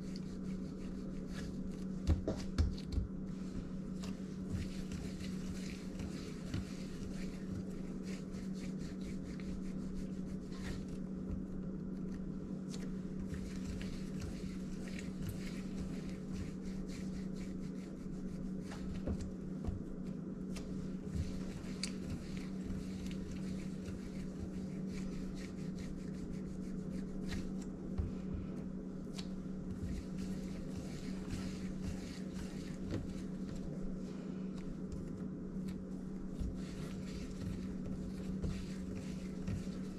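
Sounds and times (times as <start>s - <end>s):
hands rubbing bread dough: 0.0s - 39.9s
steady low hum: 0.0s - 39.9s.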